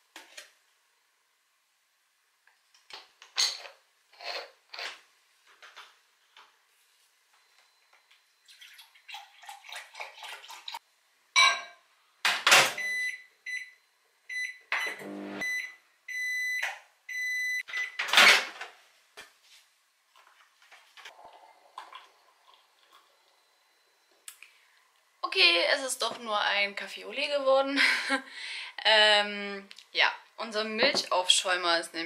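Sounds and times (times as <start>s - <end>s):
microwave oven beeping: 12.6s - 18.1s
milk pouring into a glass: 21.1s - 23.6s.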